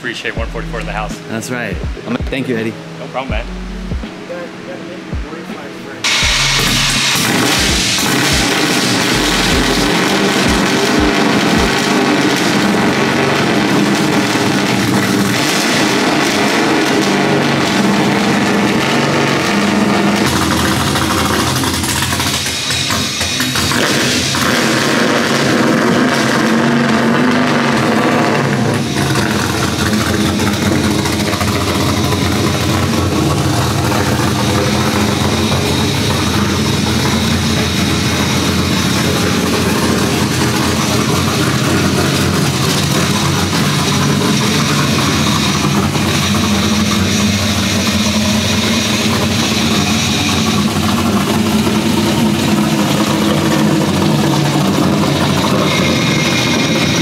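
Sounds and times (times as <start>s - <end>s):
car engine running at low revs: 0.0s - 57.0s.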